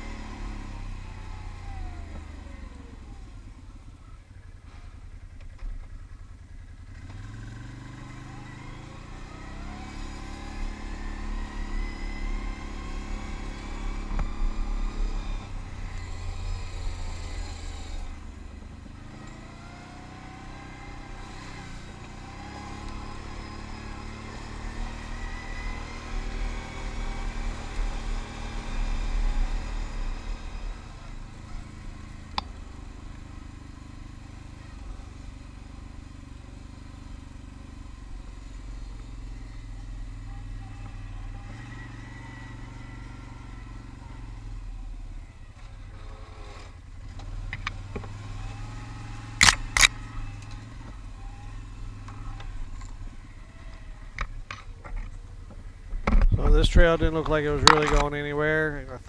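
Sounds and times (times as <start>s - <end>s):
atv engine revving: 0.0s - 59.0s
sharp click: 49.4s - 50.5s.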